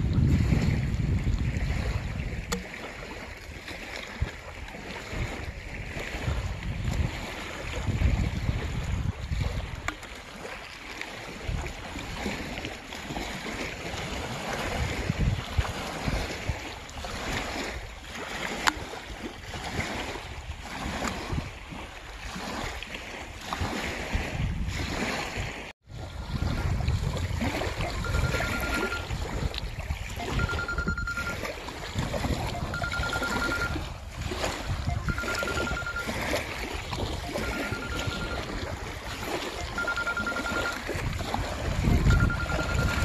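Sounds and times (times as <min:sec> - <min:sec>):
wind buffeting microphone: 0:00.0 - 0:10.1, 0:11.2 - 0:40.1, 0:40.7 - 0:43.0
small waves lapping: 0:00.0 - 0:43.0
electronic beep: 0:27.8 - 0:29.1, 0:30.2 - 0:31.5, 0:32.5 - 0:33.8, 0:34.9 - 0:36.4, 0:37.2 - 0:38.6, 0:39.3 - 0:40.8, 0:41.9 - 0:43.0.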